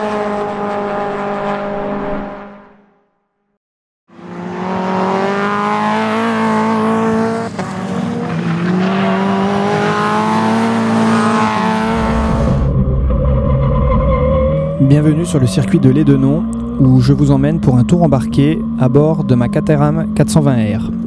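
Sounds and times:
race car engine accelerating: 4.1 - 21.0
deep rumble: 11.8 - 21.0.

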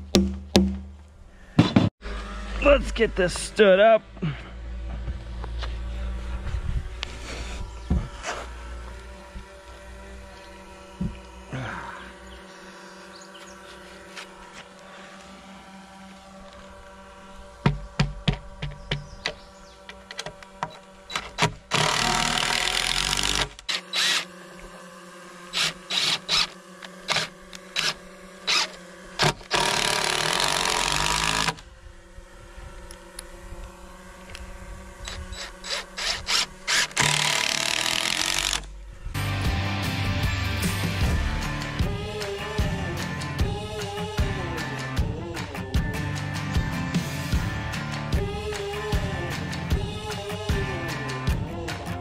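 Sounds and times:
cordless driver driving screws: 20.0 - 24.3, 25.6 - 31.6, 35.0 - 38.7.

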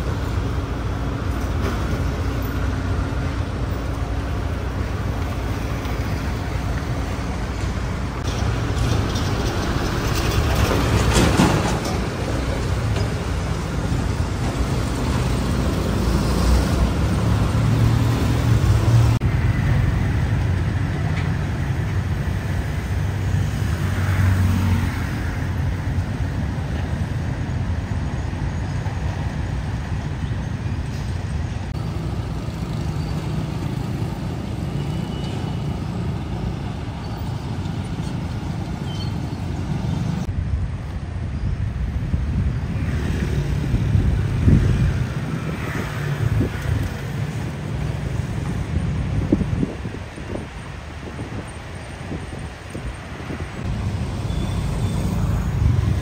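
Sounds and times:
road traffic rumble: 0.0 - 56.0.

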